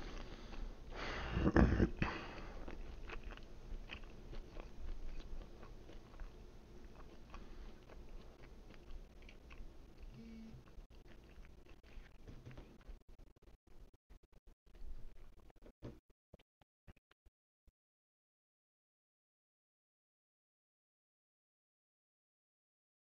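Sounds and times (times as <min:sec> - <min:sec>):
person chewing food: 0:00.0 - 0:13.6.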